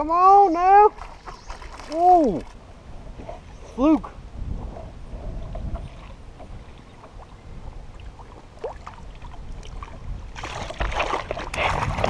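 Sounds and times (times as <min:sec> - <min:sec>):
low wind and water rumble: 0:00.0 - 0:12.0
fish splashing and thrashing: 0:00.9 - 0:02.6, 0:05.6 - 0:12.0.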